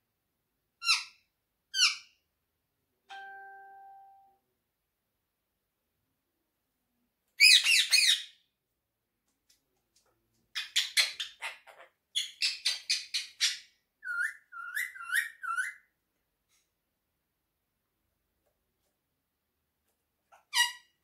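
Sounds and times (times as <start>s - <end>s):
parakeet calling: 0.8s - 2.1s, 7.4s - 8.4s, 10.6s - 15.9s.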